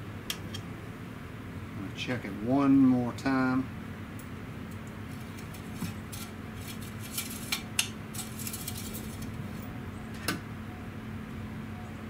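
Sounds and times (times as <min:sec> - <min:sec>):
steady low hum: 0:00.0 - 0:12.0
dipstick metallic clicks and scrapes: 0:04.8 - 0:09.6.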